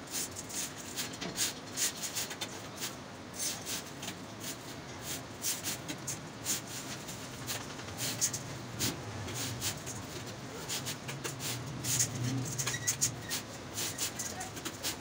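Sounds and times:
steel wires clicking and scraping: 11.1s - 15.0s.

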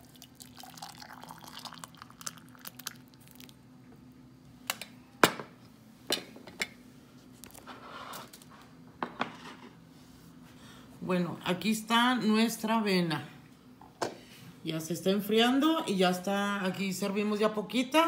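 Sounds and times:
liquid pouring into a mug: 0.0s - 3.6s.

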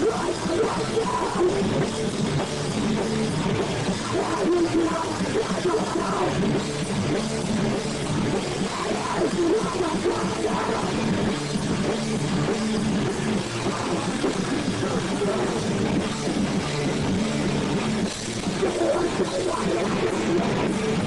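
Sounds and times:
bass guitar: 0.0s - 21.0s
distorted electric guitar: 0.0s - 21.0s
drum kit: 0.0s - 21.0s.

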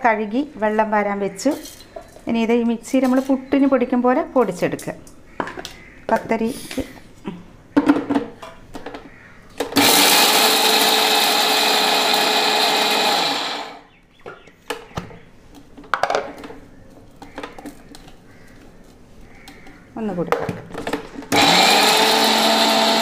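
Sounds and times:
mixer grinder motor: 9.8s - 13.9s, 21.3s - 23.0s.

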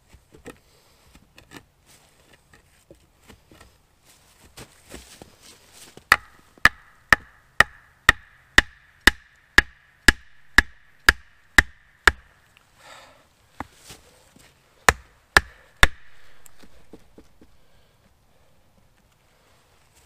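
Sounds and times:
axe striking wooden post: 6.1s - 12.4s, 14.9s - 16.7s.

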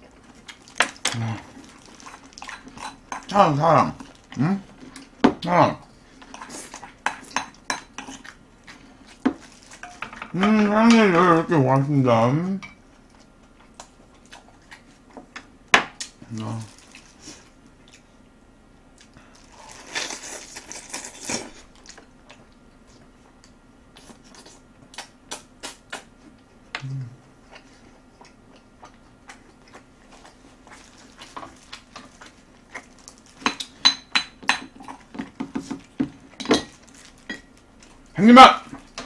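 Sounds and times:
closed-mouth hum: 0.0s - 2.2s, 3.1s - 6.8s, 20.8s - 30.7s
chewing and slurping: 0.0s - 3.3s.

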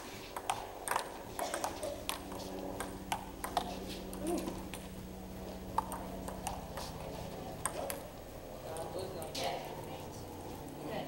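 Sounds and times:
low hum: 0.0s - 11.0s
table tennis ball clicking: 0.4s - 4.9s, 5.8s - 6.9s, 7.6s - 8.1s.

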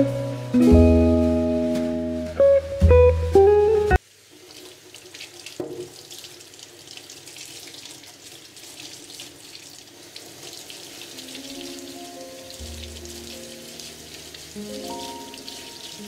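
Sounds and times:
tap water splashing in sink: 4.2s - 16.0s
hands rinsing cherries: 4.4s - 16.0s.

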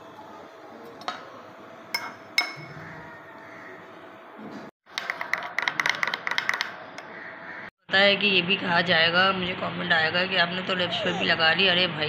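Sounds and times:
metal spoon clinking on glass bowl: 2.0s - 2.7s.

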